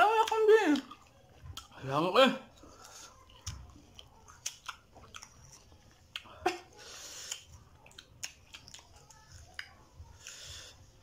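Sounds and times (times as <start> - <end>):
people chewing mango: 0.2 - 1.9, 2.5 - 11.0
mouth smacks: 7.2 - 9.8.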